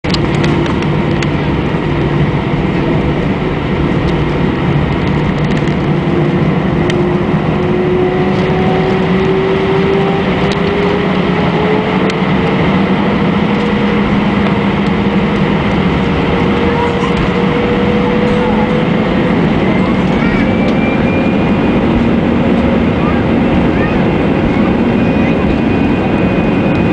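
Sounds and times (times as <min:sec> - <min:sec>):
jet engines humming and whining: 0:00.0 - 0:26.9.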